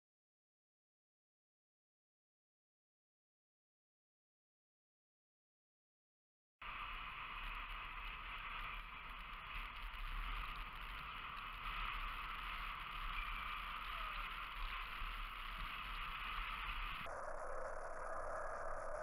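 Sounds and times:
tyres hissing on asphalt: 6.6s - 17.1s.

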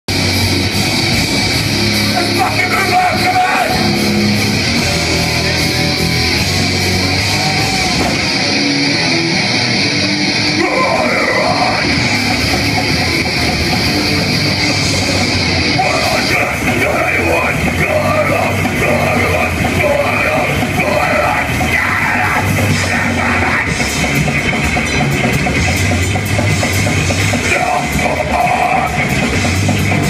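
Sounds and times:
punk band playing live: 0.1s - 30.0s
person yelling vocals: 10.6s - 11.8s.

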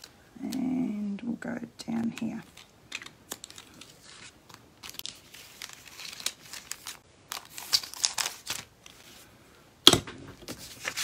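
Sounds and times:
paper rustling and crinkling: 2.4s - 9.3s, 10.4s - 11.0s.

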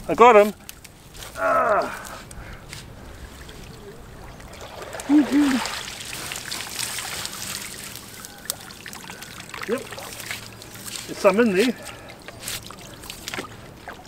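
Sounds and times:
water trickling and dripping from net: 3.1s - 14.0s.

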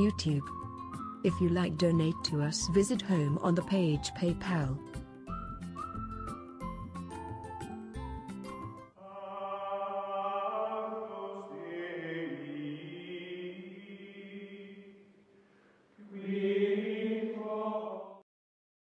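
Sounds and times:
choir singing held chords: 9.0s - 15.1s, 16.0s - 18.2s.

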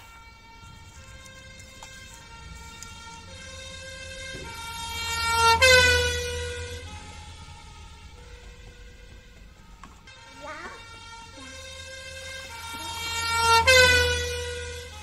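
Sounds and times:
toy siren: 0.0s - 15.0s.

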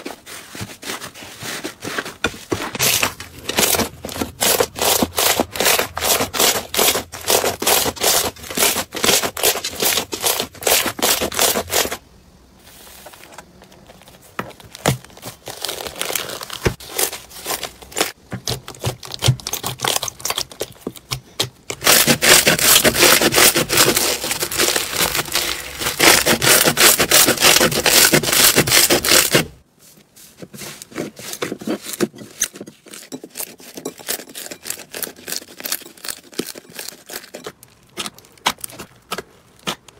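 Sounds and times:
slime crackling and squelching: 13.7s - 29.4s.

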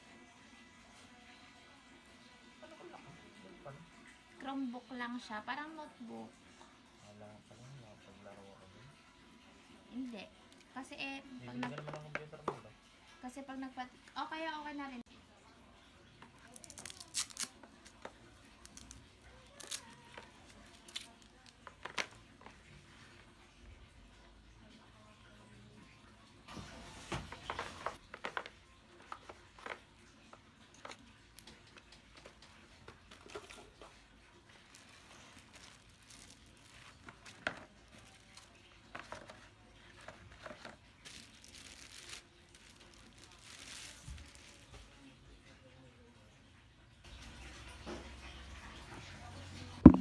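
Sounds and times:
plastic packaging crinkling: 16.4s - 18.0s, 18.6s - 22.1s, 34.6s - 44.7s.

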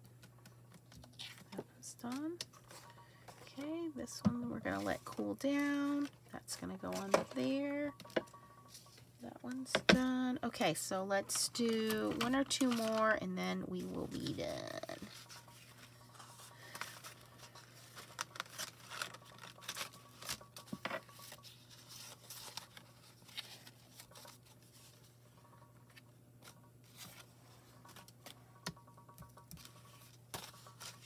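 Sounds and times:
low steady hum: 0.0s - 31.0s
paper rustling: 11.6s - 13.2s, 14.1s - 25.1s.

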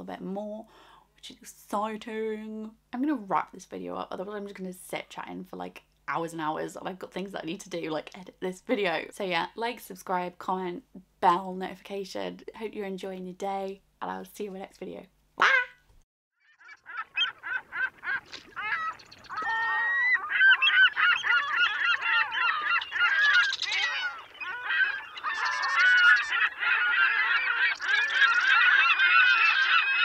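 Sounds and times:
flock of birds calling: 16.4s - 30.0s.

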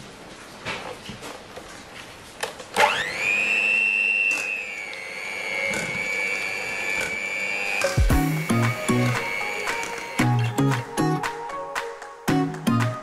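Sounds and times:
hand mixer motor whine: 2.8s - 10.8s.

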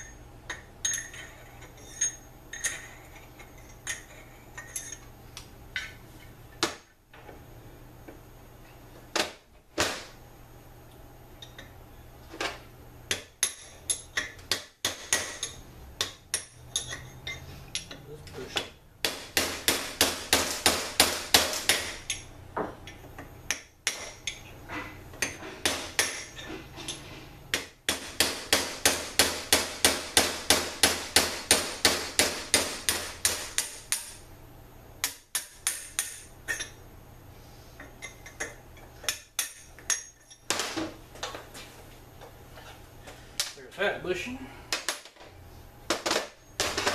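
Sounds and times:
hammer striking metal punch: 18.6s - 22.2s, 27.5s - 34.2s.

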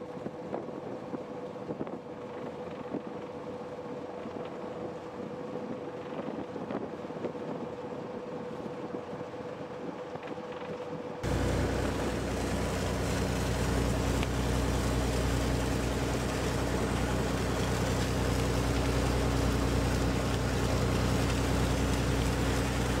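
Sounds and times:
water splashing along hull: 0.0s - 23.0s
wind and sea: 0.0s - 23.0s
boat engine droning: 11.2s - 23.0s.

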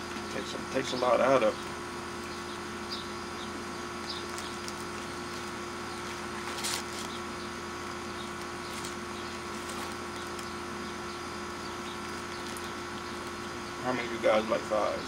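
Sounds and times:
air conditioner humming: 0.0s - 15.0s
paper rustle: 4.2s - 7.2s, 8.3s - 10.6s
paper box crinkling: 4.2s - 7.3s, 8.2s - 10.6s, 11.9s - 13.4s.

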